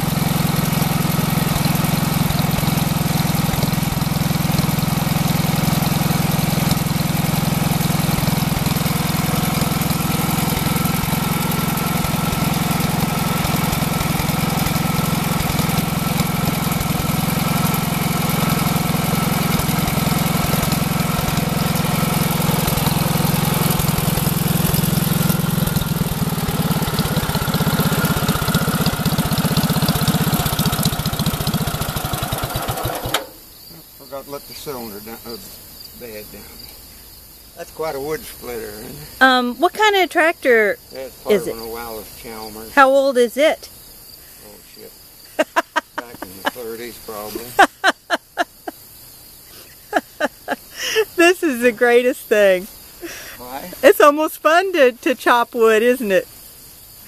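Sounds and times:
tractor engine running: 0.0 - 33.5.

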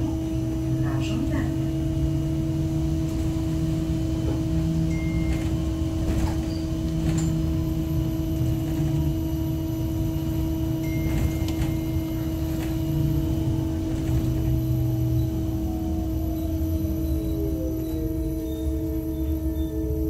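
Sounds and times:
low rumble: 0.0 - 20.0.

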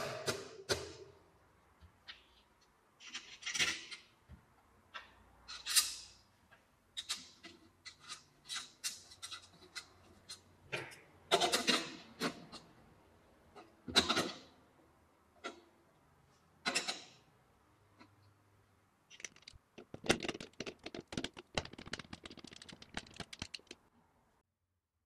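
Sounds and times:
metal parts clicking and knocking: 19.1 - 23.8.

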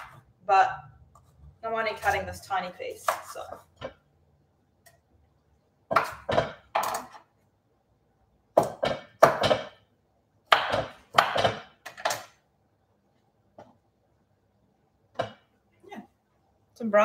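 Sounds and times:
knife chopping on wooden board: 5.9 - 7.2, 8.5 - 9.8, 10.5 - 12.3.

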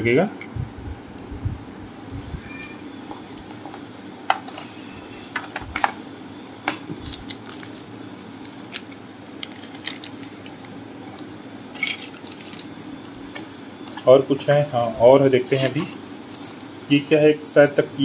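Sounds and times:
plastic bag crinkling: 7.0 - 10.6, 11.8 - 12.7, 16.3 - 18.0.

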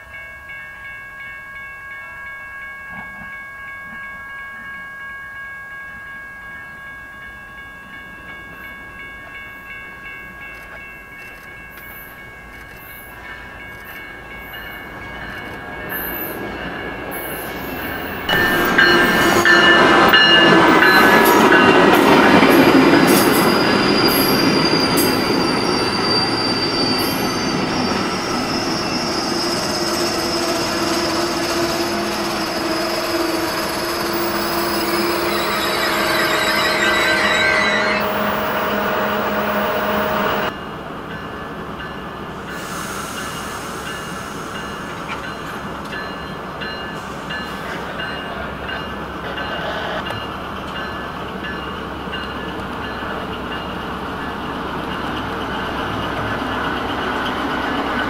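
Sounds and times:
train coaches rumbling and clattering: 8.3 - 58.0
diesel locomotive passing: 8.5 - 58.0
thin wheel squeal: 23.4 - 40.5.

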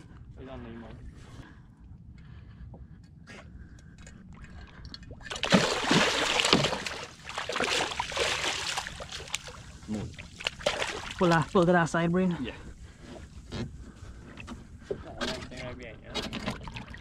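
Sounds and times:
stingray splashing in water: 5.2 - 11.6.

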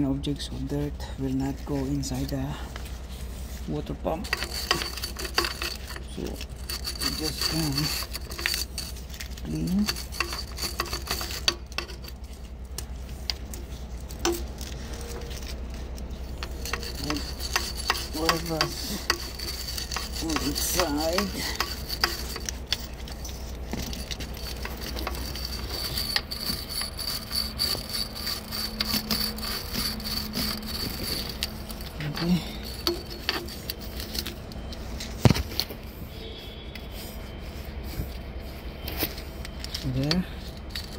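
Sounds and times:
wire brush rasping on metal: 3.0 - 34.8, 39.5 - 40.9.

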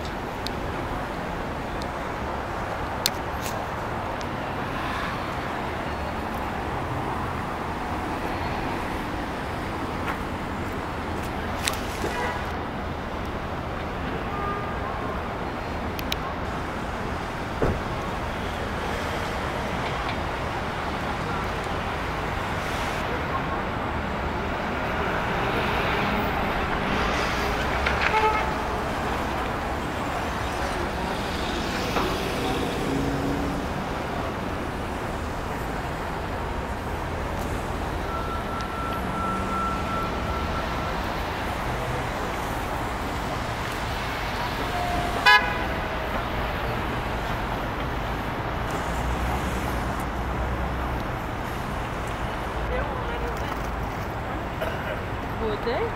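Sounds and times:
traffic hum: 0.0 - 55.9
car horn long tone: 28.0 - 28.8, 44.6 - 45.9.

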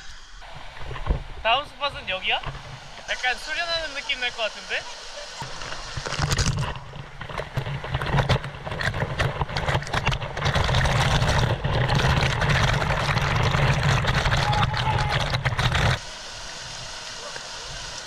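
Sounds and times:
water rushing and spattering: 0.0 - 18.0
water striking the microphone: 0.4 - 4.0, 5.4 - 16.0.

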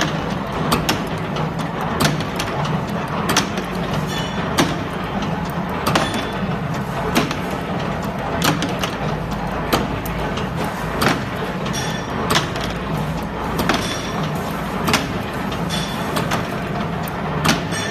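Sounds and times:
machine humming: 0.0 - 17.9
sharp metallic clack: 17.5 - 17.9.

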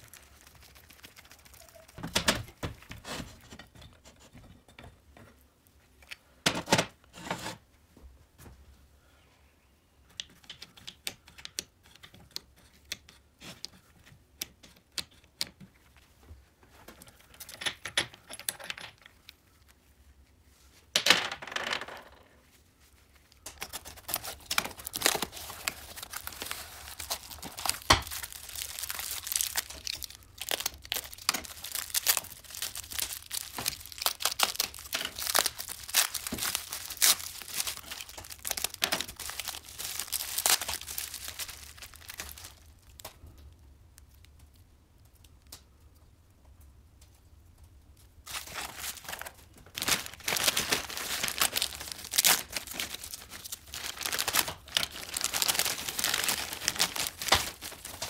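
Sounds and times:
bubble wrap crackling: 0.0 - 3.4, 22.8 - 43.2, 48.2 - 58.0.

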